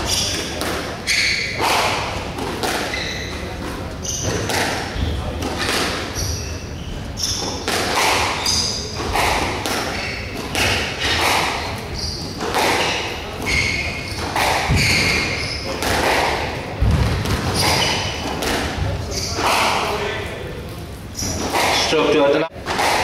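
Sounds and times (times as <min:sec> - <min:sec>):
squash ball striking rackets and walls: 0:00.0 - 0:20.3, 0:21.2 - 0:23.0
shoes squeaking on court floor: 0:00.0 - 0:22.2
heavy thud: 0:16.8 - 0:17.6.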